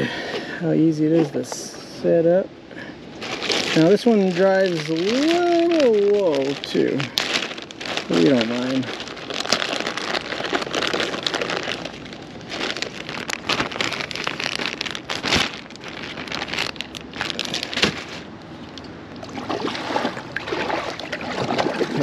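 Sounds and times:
plastic bag crinkling: 3.2 - 18.8.

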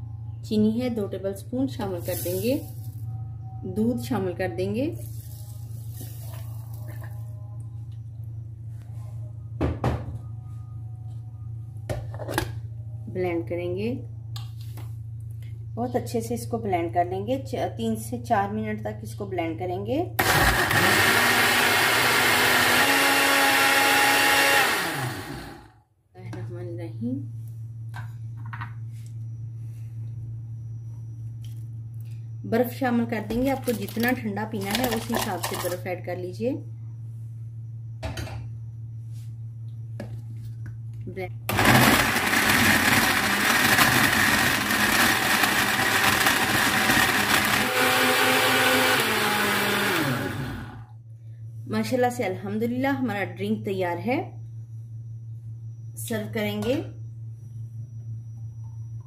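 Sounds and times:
blender motor running: 20.2 - 25.7, 41.5 - 50.9.

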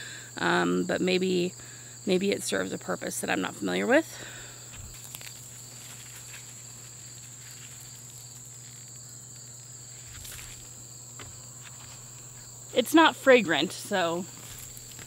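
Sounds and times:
high-pitched insect chorus: 0.0 - 15.0
rustling of weeds pulled: 4.6 - 12.5, 13.9 - 15.0.

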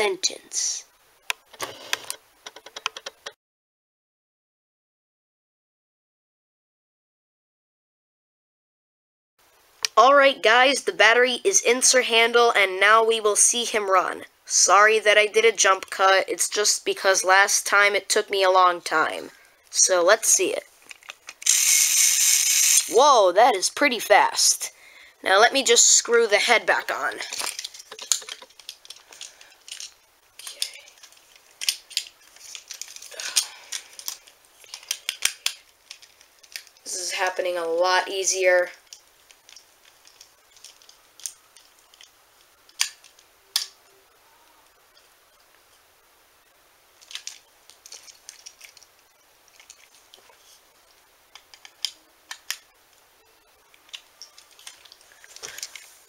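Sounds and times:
screwdriver and plastic clicks: 51.4 - 52.6.

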